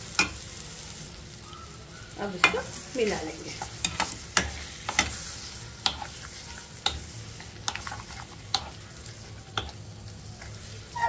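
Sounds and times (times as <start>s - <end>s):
oil sizzling: 0.0s - 11.0s
spatula scraping and knocking pan: 3.5s - 9.8s.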